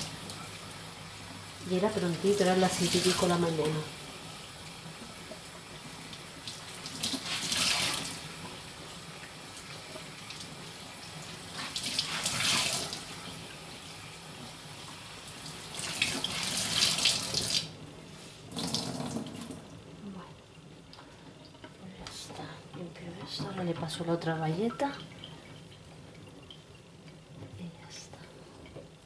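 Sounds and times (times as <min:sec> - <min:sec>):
cloth rinsed splashing: 0:04.7 - 0:14.0, 0:14.8 - 0:17.8.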